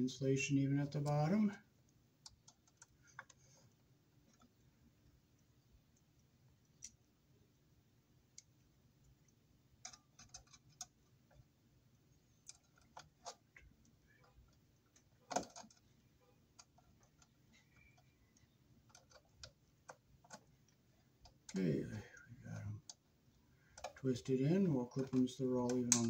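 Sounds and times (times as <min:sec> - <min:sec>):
pliers clicking on wires: 0:25.0 - 0:26.0.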